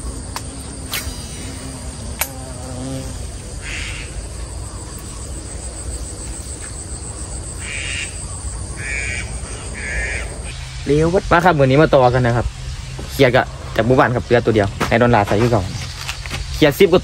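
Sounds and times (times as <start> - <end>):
insects chirring: 0.0 - 17.0
sharp click: 2.2 - 2.4
bird harsh calls: 3.6 - 5.3, 7.6 - 11.1.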